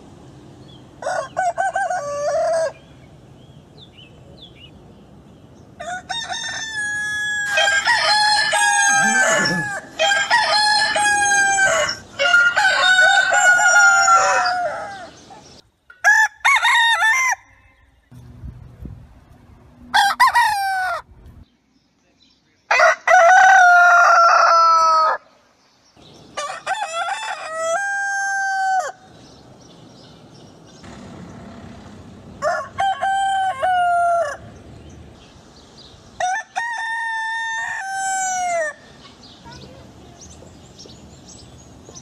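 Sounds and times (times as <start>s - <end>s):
rooster crowing: 1.0s - 2.8s, 5.8s - 15.2s, 16.0s - 18.0s, 19.9s - 21.1s, 22.7s - 25.3s, 26.4s - 29.0s, 32.4s - 34.5s, 36.2s - 38.8s.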